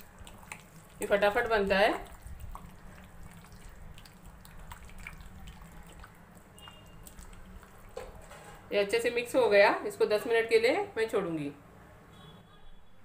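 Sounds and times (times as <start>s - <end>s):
wet squelches: 0.0s - 8.3s.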